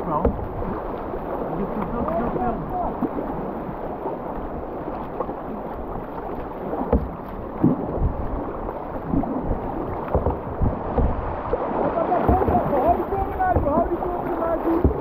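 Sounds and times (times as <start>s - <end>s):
river water rushing and splashing: 0.0s - 15.0s
dull thumps: 0.1s - 0.6s, 6.8s - 8.2s, 9.9s - 11.6s, 12.2s - 15.0s.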